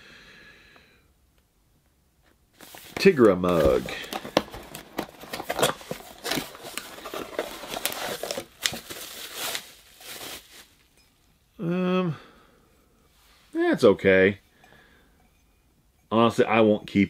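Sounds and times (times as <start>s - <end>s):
plastic bag crinkling: 2.6s - 11.0s.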